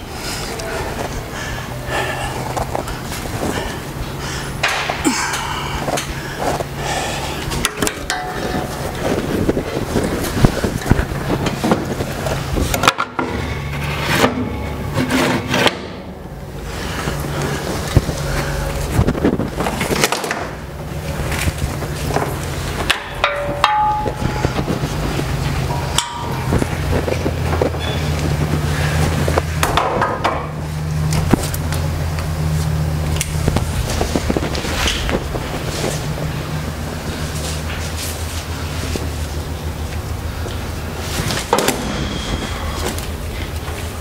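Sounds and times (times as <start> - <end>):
truck idling: 0.0 - 12.9, 15.8 - 44.0
steady low hum: 0.0 - 44.0
cart knocking and clattering on metal: 22.1 - 30.6.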